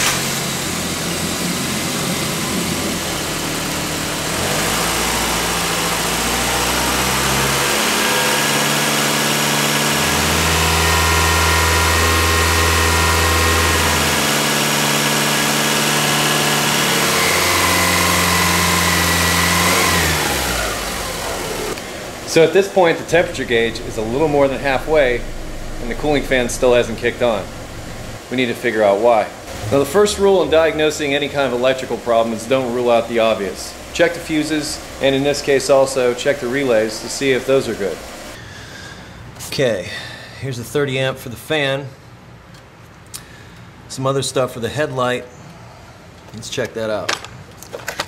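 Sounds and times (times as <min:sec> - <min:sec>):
car engine idling: 0:00.0 - 0:28.4, 0:29.4 - 0:38.4.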